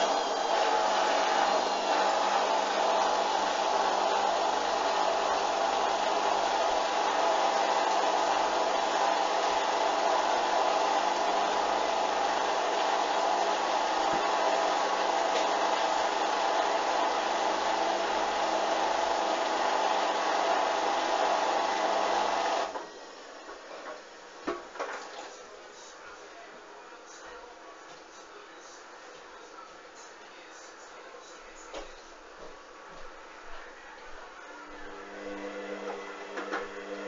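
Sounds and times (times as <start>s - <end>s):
washing machine spinning: 0.0s - 24.4s, 34.8s - 37.0s.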